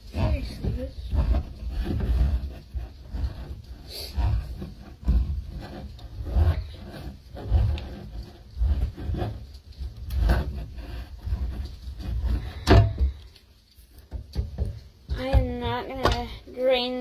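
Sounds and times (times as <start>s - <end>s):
can opener rasping scrape: 0.2s - 12.7s.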